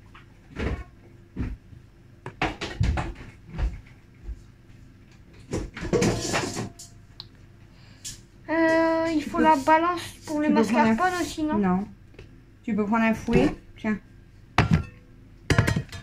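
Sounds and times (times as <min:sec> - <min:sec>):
clatter of things being moved: 0:05.2 - 0:07.0.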